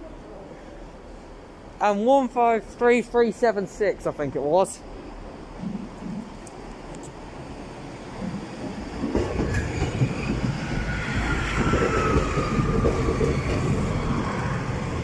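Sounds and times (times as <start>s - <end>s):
wheels clattering over rails: 8.2s - 14.2s
descending whine: 9.5s - 15.0s.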